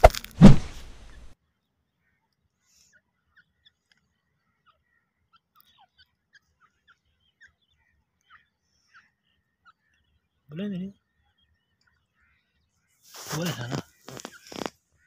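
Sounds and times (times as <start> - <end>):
short bird chirps: 13.0 - 14.8.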